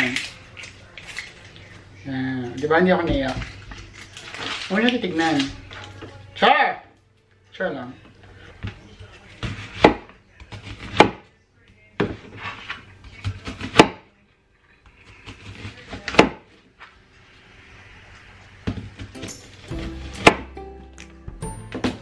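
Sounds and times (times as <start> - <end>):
knife slicing onion: 9.3 - 11.2, 12.4 - 14.0, 18.6 - 20.6.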